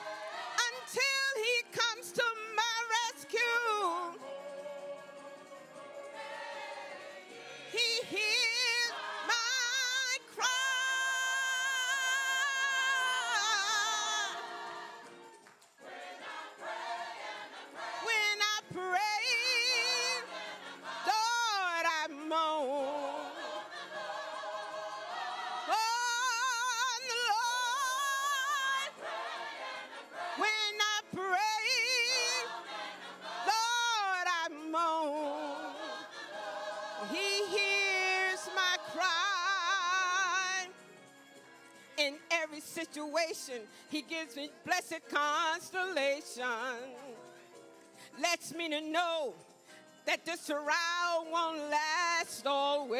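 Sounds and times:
gospel choir singing: 0.0s - 40.8s.

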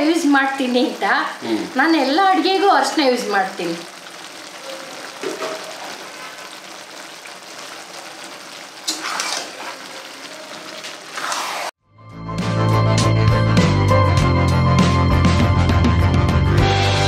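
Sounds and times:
vegetables sizzling in oil: 0.0s - 11.8s
music: 11.8s - 17.0s.

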